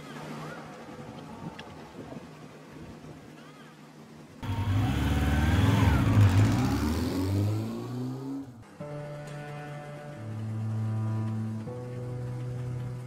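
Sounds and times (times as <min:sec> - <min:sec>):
faint outdoor air: 0:00.0 - 0:13.0
car engine rev sound effect: 0:04.4 - 0:08.6.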